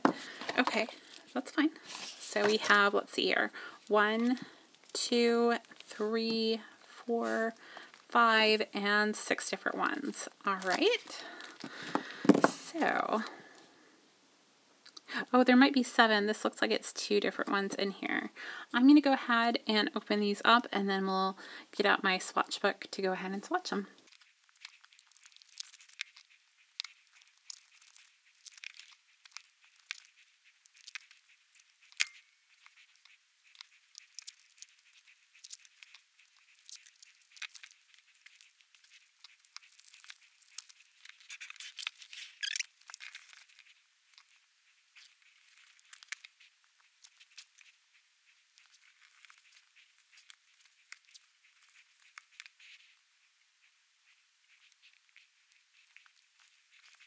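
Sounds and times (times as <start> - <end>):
plastic wrappers crinkling: 0.0 - 8.2, 24.0 - 44.4, 45.0 - 47.7, 48.6 - 53.0.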